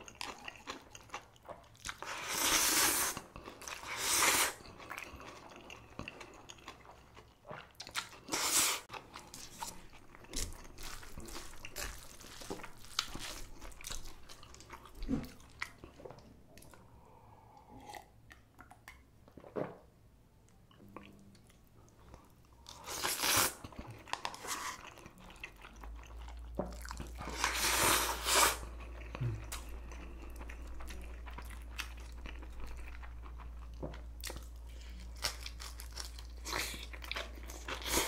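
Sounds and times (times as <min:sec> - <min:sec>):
wet chewing and crunching: 0:00.0 - 0:16.8, 0:28.6 - 0:38.0.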